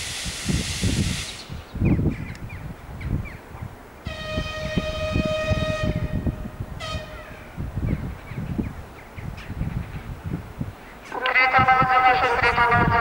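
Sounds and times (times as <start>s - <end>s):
locomotive horn blasts: 4.0s - 7.6s.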